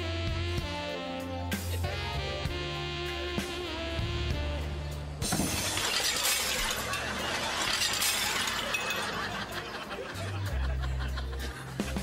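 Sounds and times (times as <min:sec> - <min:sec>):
crockery and glass smashing: 0:05.2 - 0:09.4.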